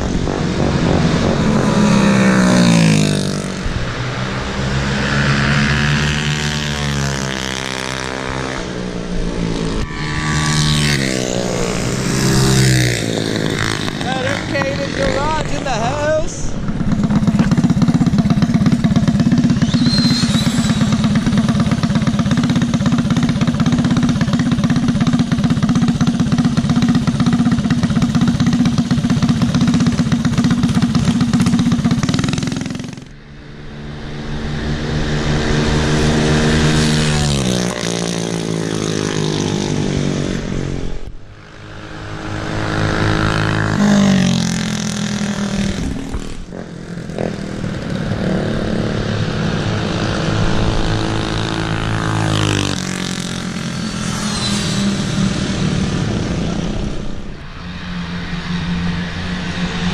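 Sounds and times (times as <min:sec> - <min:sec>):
minibike engine running: 0:05.9 - 0:40.8.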